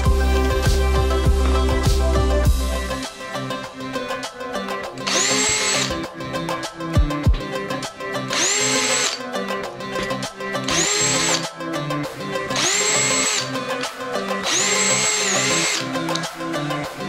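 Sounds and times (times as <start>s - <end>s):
background music: 0.0s - 17.0s
cordless drill motor whine: 5.0s - 6.0s, 8.3s - 9.4s, 10.6s - 11.5s, 12.5s - 16.3s.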